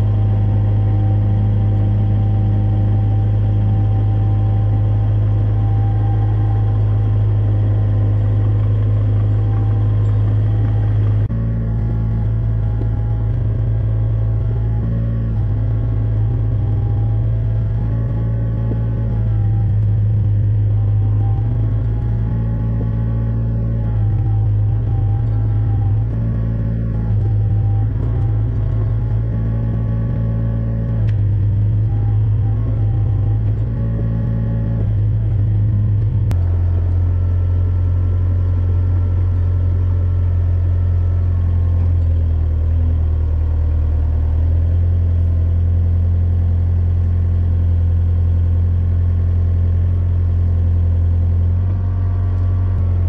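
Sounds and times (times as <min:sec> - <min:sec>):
excavator diesel engine running: 0:00.0 - 0:53.0.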